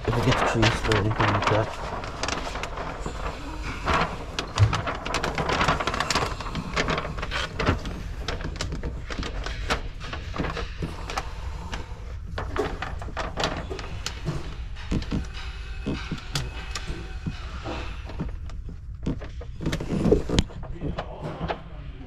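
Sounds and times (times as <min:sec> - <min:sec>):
scattered knocks: 0:00.0 - 0:11.2
plastic film rustling and crackling: 0:00.0 - 0:22.0.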